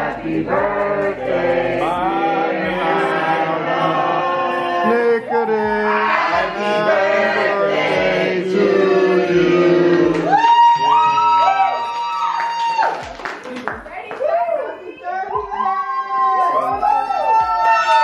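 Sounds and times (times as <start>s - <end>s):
low thumping beat: 0.0s - 3.7s, 5.4s - 10.4s
group singing together: 0.0s - 10.4s.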